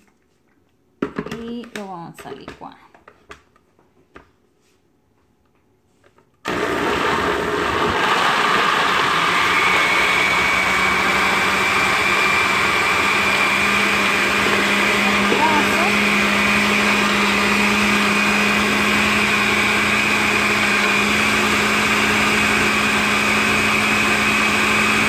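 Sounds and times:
blender running: 0:06.4 - 0:25.0.

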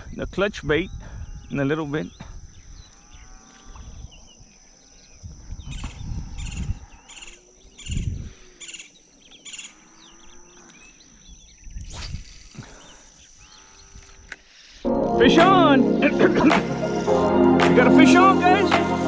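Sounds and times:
wind rumble on microphone: 0:00.0 - 0:08.5, 0:11.4 - 0:12.8
high insect drone: 0:00.0 - 0:17.5
birds calling: 0:00.8 - 0:14.8.

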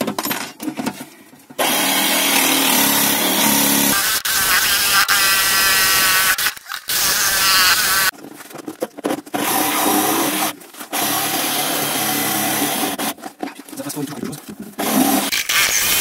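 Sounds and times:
jigsaw cutting wood: 0:01.6 - 0:08.1, 0:09.4 - 0:13.1, 0:14.8 - 0:16.0.

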